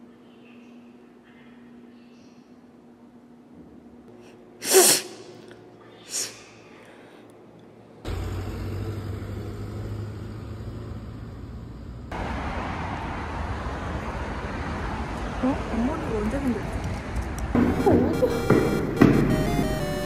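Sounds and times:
person sneezing: 0:04.6 - 0:06.6
low traffic rumble: 0:08.0 - 0:19.0.

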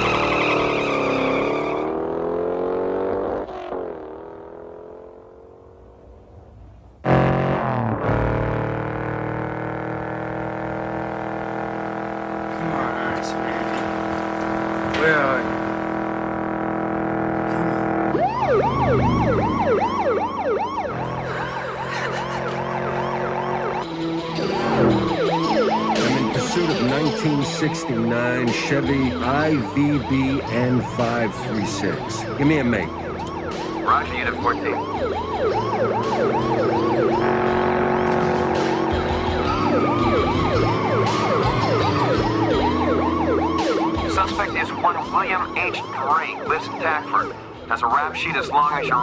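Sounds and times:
police siren yelping: 0:00.0 - 0:02.7, 0:12.8 - 0:49.0
car engine noise: 0:00.0 - 0:49.0.

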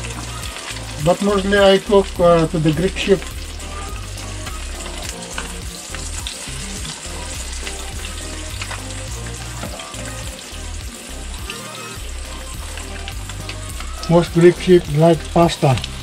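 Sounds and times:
fritters sizzling in hot oil: 0:00.0 - 0:16.0.

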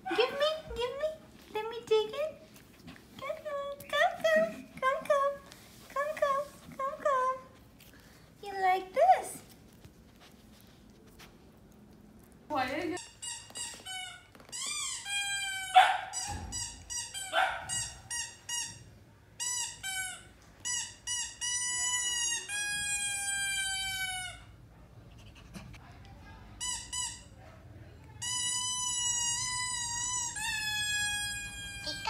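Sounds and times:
puppy yelps: 0:15.0 - 0:16.4, 0:17.0 - 0:18.4.

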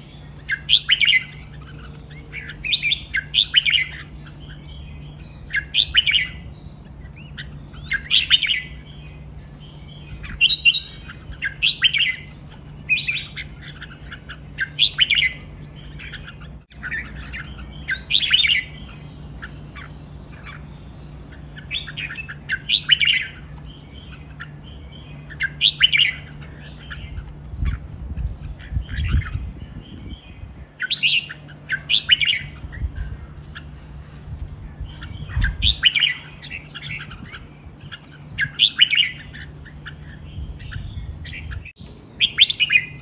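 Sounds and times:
birds singing chirpy phrases: 0:00.0 - 0:43.0.

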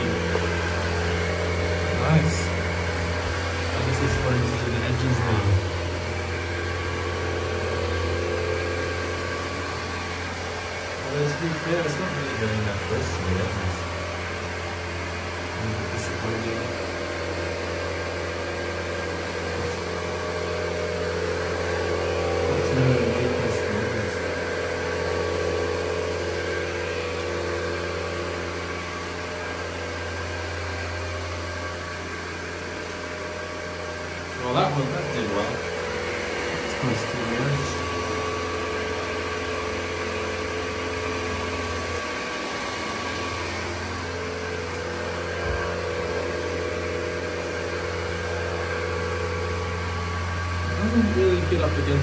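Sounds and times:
robot vacuum suction motor whirring: 0:00.0 - 0:15.2
robot vacuum motor whir: 0:00.0 - 0:52.0.

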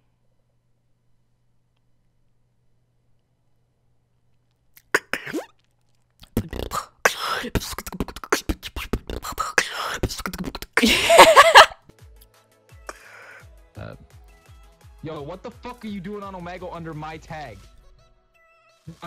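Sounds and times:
wavering pitched vocal sound: 0:04.8 - 0:05.5, 0:06.2 - 0:11.3
woman beatboxing into a microphone: 0:04.8 - 0:05.5, 0:06.2 - 0:11.4.

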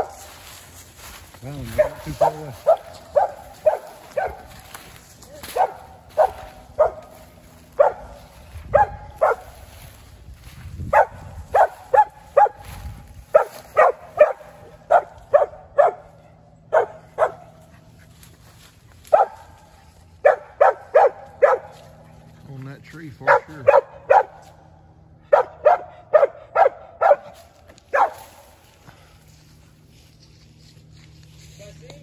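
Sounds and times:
dog barking sharply: 0:05.5 - 0:07.1, 0:07.8 - 0:08.2, 0:08.8 - 0:09.4, 0:11.0 - 0:12.6, 0:13.3 - 0:16.0, 0:19.1 - 0:19.5, 0:20.2 - 0:21.7, 0:23.2 - 0:24.4, 0:25.3 - 0:28.2.

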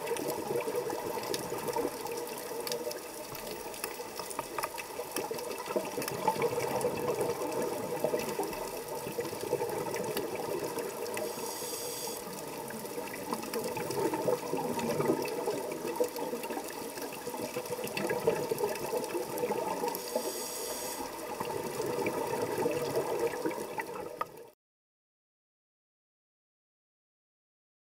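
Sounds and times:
underwater breathing bubbles: 0:00.0 - 0:24.2
short hisses: 0:11.3 - 0:12.2.

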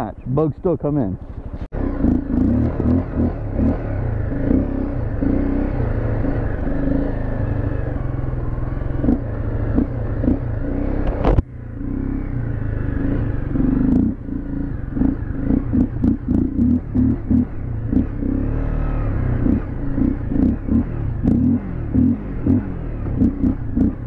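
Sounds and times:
motorcycle engine surging: 0:01.4 - 0:24.0.

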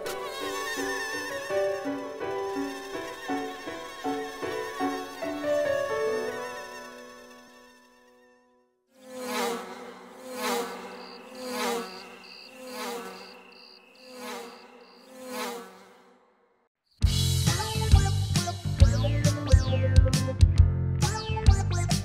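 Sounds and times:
low insect buzzing call: 0:00.0 - 0:08.2, 0:09.0 - 0:16.4
cricket chirping: 0:10.6 - 0:15.1.

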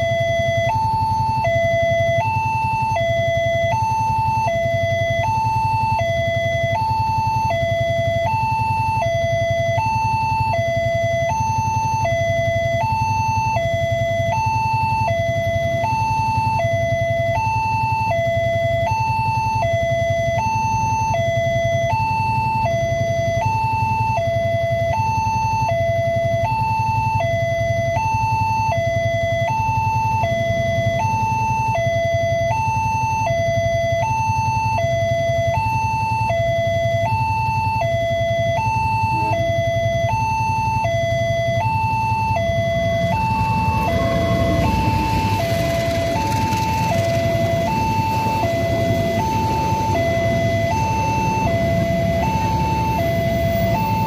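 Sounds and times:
two-tone crossing alarm: 0:00.0 - 0:54.0
passenger train passing: 0:42.5 - 0:54.0.

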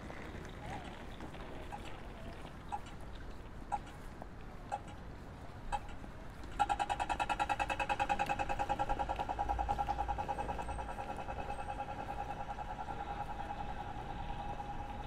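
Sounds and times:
low traffic rumble: 0:00.0 - 0:15.0
crossing signal ticking: 0:05.8 - 0:15.0.

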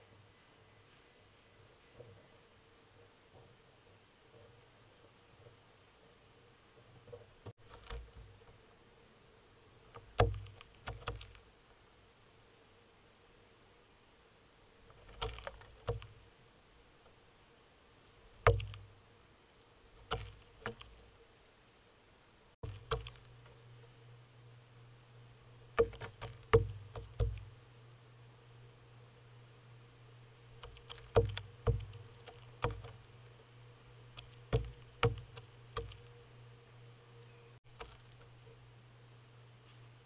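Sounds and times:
faint steady hum: 0:00.0 - 0:40.0
bird bill knocking on railing: 0:09.9 - 0:11.4, 0:15.2 - 0:16.1, 0:18.4 - 0:18.9, 0:20.0 - 0:21.0, 0:22.6 - 0:23.5, 0:25.7 - 0:27.5, 0:30.6 - 0:33.0, 0:34.2 - 0:36.1.

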